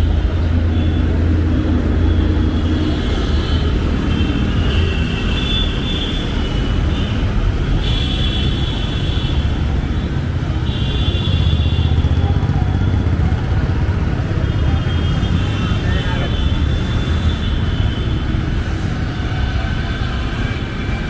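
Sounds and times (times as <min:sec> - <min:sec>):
passing vehicle engines rumble: 0:00.0 - 0:21.0.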